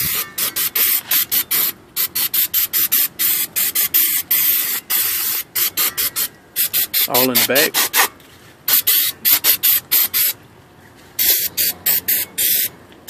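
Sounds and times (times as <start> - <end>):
aerosol can spraying: 0.0 - 8.1, 8.7 - 10.4, 11.2 - 12.7.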